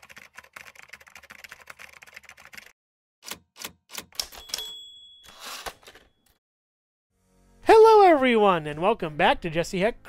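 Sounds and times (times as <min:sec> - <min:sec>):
typewriter bell ding: 0:04.2 - 0:06.2.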